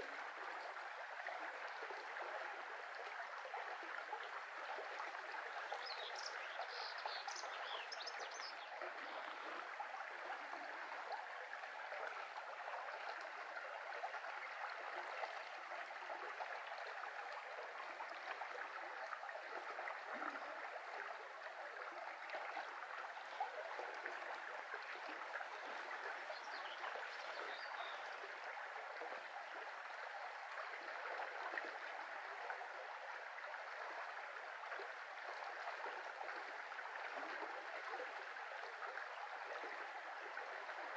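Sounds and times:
brook babbling: 0.0 - 40.9.

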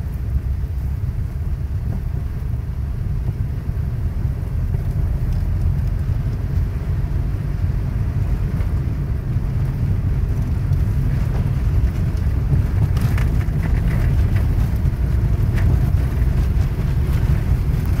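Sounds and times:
car engine and tyres rumbling: 0.0 - 18.0
windshield wiper ticking: 9.5 - 18.0.

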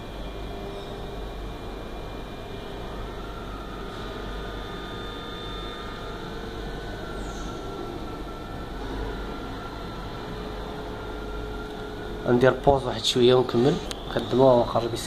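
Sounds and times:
running machinery hum and hiss: 0.0 - 15.0.

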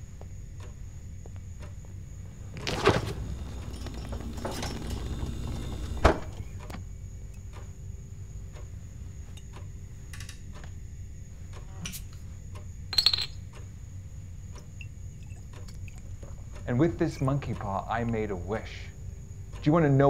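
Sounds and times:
refrigerator door shutting: 2.6 - 6.8
glass bottle clicking: 12.9 - 13.4.

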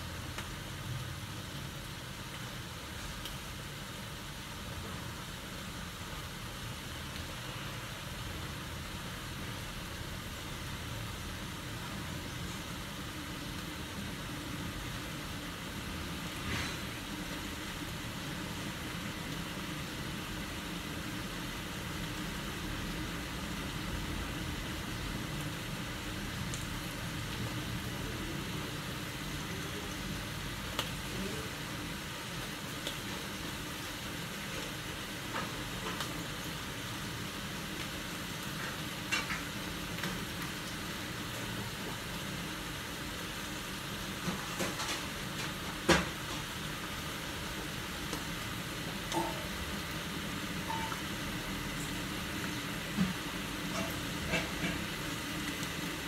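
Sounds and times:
liquid bubbling and sizzling: 0.0 - 56.0.

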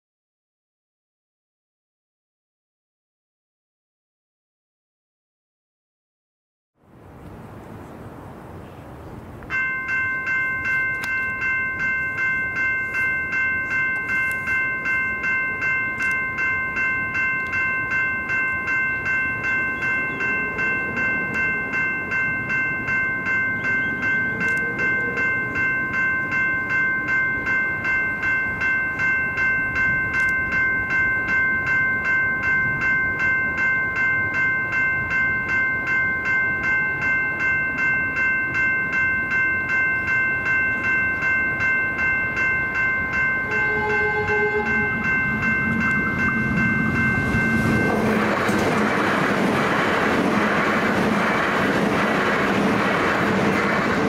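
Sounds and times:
approaching train rumble: 6.8 - 54.0
electronic level-crossing bells ringing: 9.5 - 49.3.

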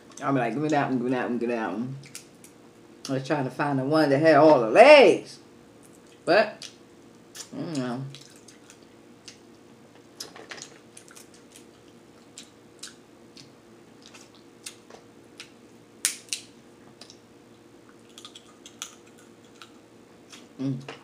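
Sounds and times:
sucking and chewing: 5.9 - 9.5, 10.1 - 17.2, 17.8 - 20.8
crab shells cracking: 17.9 - 19.8.

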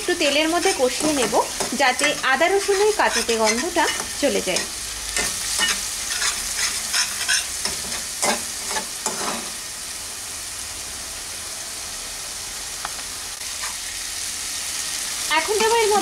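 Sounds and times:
paste sizzling in oil: 0.0 - 10.0, 13.3 - 16.0
metal spatula scraping pan: 0.2 - 9.6.

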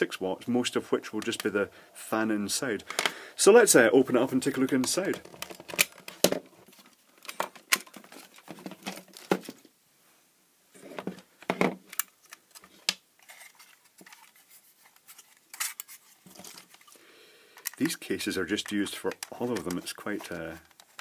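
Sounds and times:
handling clicks and knocks: 4.5 - 9.6, 17.6 - 21.0.

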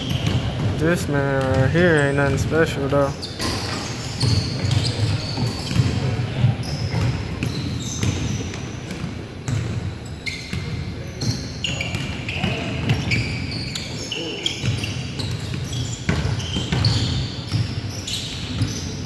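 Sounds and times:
basketballs bouncing: 0.0 - 19.0
sneakers squeaking on wooden floor: 0.0 - 19.0
players' voices: 0.3 - 3.3.

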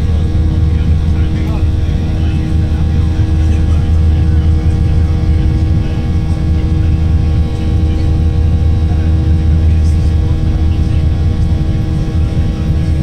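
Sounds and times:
jet engines rumbling: 0.0 - 13.0
steady humming tones: 0.0 - 13.0.

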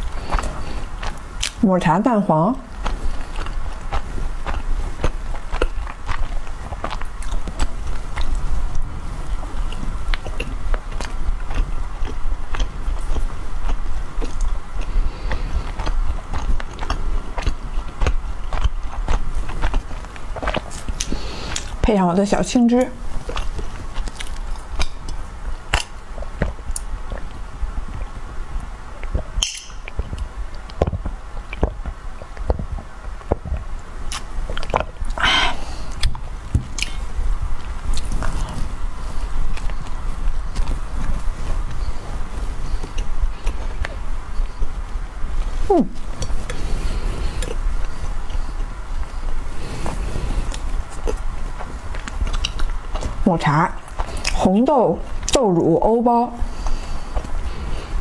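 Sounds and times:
biting and chewing bread: 0.0 - 1.6, 2.7 - 21.8, 22.9 - 55.8
low steady hum: 0.0 - 58.0
mouth clicks: 36.8 - 37.0.

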